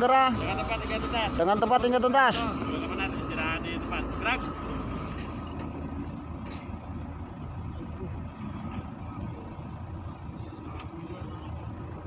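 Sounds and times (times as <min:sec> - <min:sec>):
vehicle engine idling: 0:00.0 - 0:12.0
faint voices: 0:07.7 - 0:12.0.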